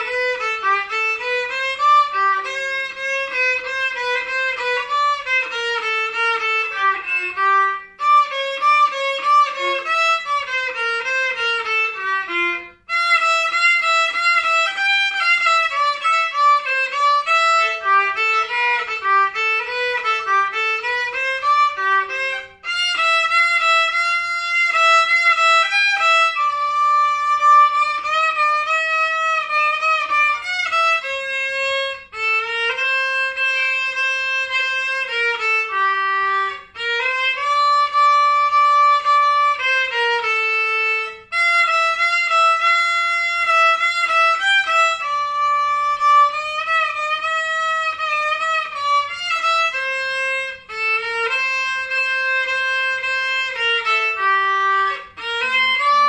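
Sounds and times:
solo violin melody: 0:00.0 - 0:56.0.

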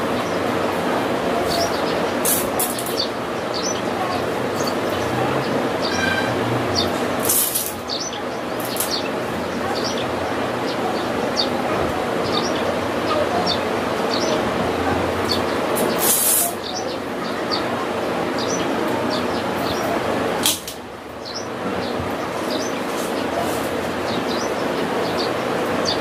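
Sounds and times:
small birds chirping: 0:00.0 - 0:20.3, 0:21.1 - 0:26.0
steady background hiss: 0:06.9 - 0:21.6.

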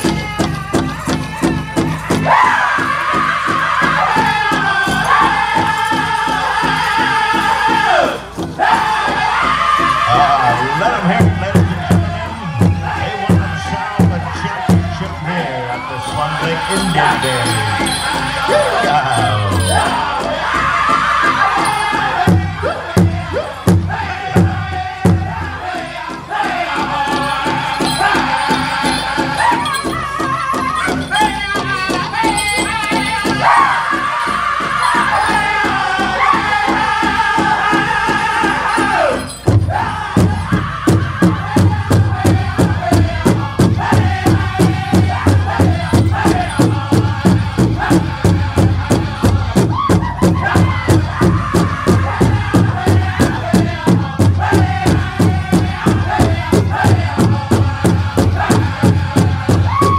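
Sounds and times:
big drum beat: 0:00.0 - 0:59.9
high-pitched group singing: 0:00.0 - 0:59.9.

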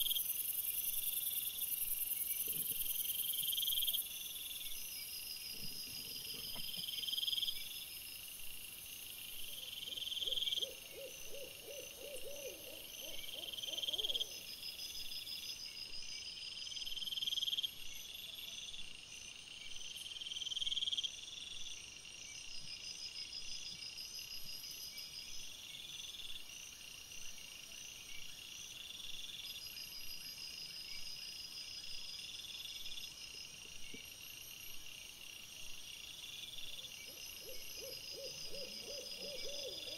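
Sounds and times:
crickets chirping: 0:00.0 - 0:39.9.

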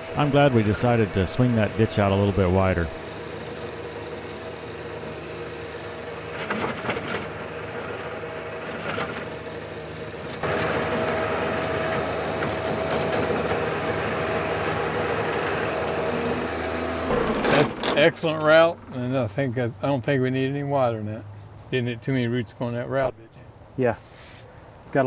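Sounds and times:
tractor diesel engine under load: 0:00.0 - 0:21.0
tiller knocks: 0:10.3 - 0:18.2.

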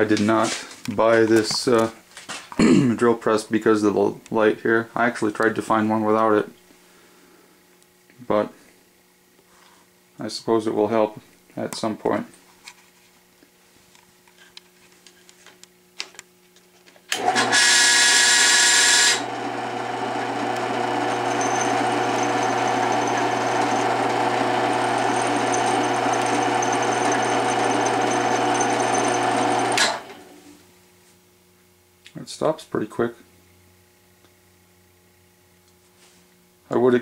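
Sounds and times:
drill press motor running: 0:17.1 - 0:30.4.

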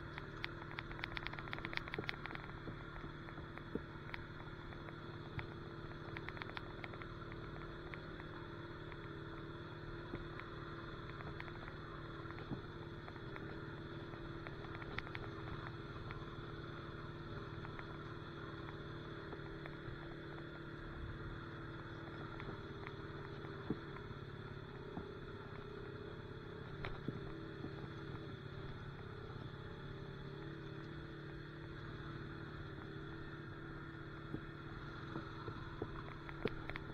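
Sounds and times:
light clicks and rattles: 0:00.0 - 0:09.1, 0:10.3 - 0:16.2, 0:35.8 - 0:36.9
four-wheeler engine running: 0:00.0 - 0:36.9.

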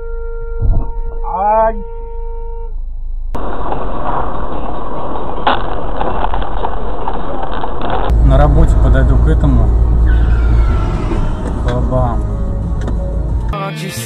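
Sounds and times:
long steady tone: 0:00.0 - 0:03.4
car engine and road noise: 0:02.7 - 0:14.0.

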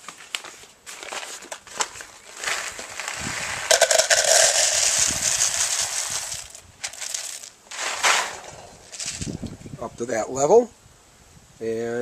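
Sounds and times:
beans poured into plastic cup: 0:02.2 - 0:09.4.

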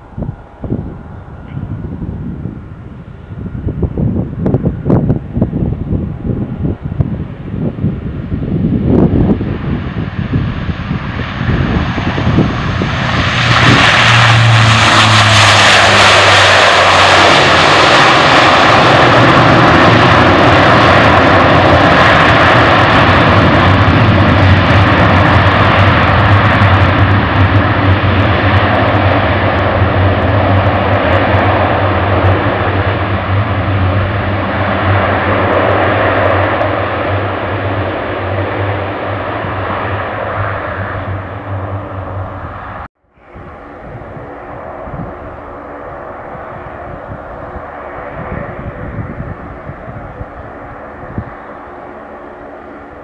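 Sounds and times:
low propeller drone: 0:00.0 - 0:53.0
turboprop engines roaring: 0:00.0 - 0:53.0.

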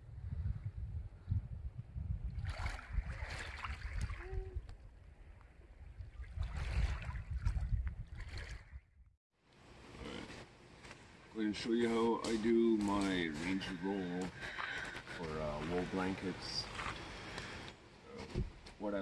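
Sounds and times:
wind rumbling on microphone: 0:00.0 - 0:09.1.

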